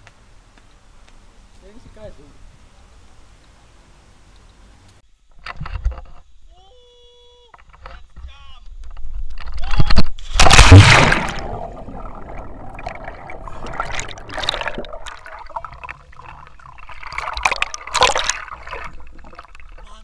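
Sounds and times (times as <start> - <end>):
splash into swimming pool: 10.2 - 15.8, 16.8 - 20.0
underwater gurgling and bubbling: 10.4 - 19.9.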